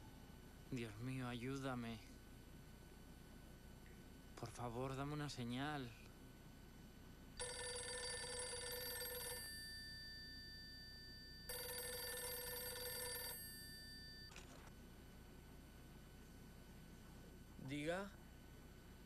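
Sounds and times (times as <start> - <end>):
telephone bell ringing: 7.4 - 14.5.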